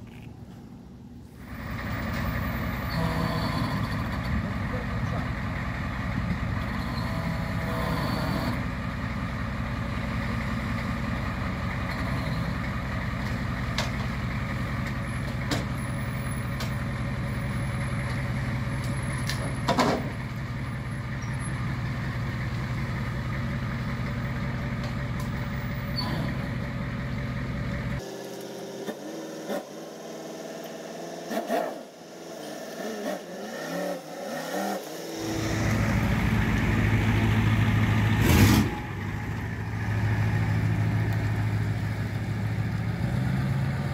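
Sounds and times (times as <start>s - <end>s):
pickup truck engine approaching: 0.0s - 31.2s, 34.1s - 43.9s
truck engine idling: 0.0s - 31.2s, 35.0s - 43.9s.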